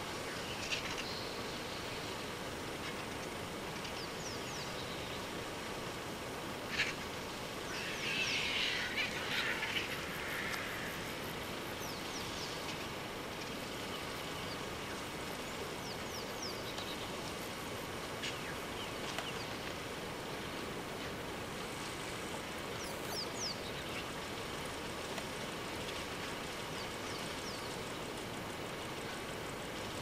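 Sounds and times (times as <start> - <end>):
outdoor background hiss: 0.0 - 30.0
vultures hissing and scuffling: 6.7 - 12.9.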